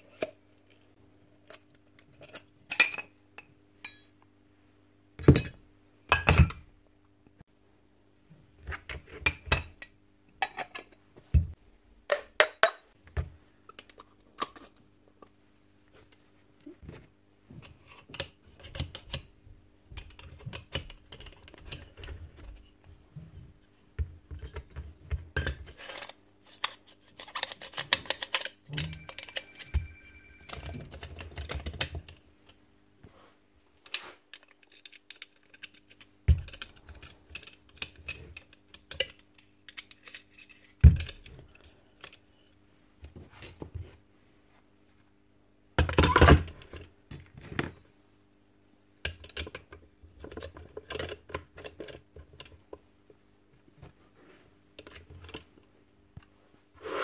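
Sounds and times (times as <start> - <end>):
faint steady hum: 0.0 - 57.0
clicks and rattles of tool parts: 33.8 - 42.2, 49.1 - 52.7.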